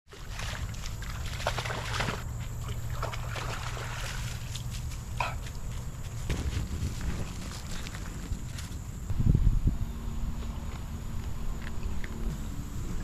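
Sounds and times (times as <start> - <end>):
dog splashing through water: 0.1 - 5.1
steady low rumble: 4.8 - 13.0.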